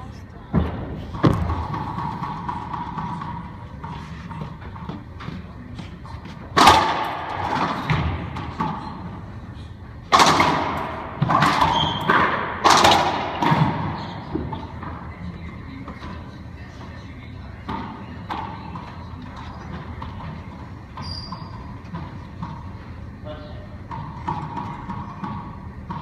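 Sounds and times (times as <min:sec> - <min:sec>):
racquetball cracks off racquets and walls: 0:10.1 - 0:13.9.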